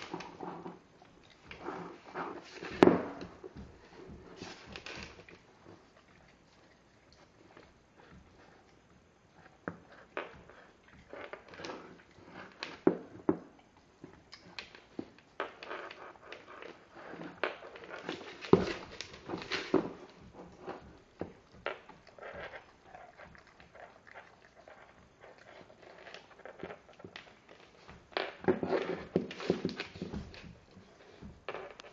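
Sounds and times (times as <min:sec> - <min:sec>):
dog chewing a bone: 0:00.0 - 0:31.9.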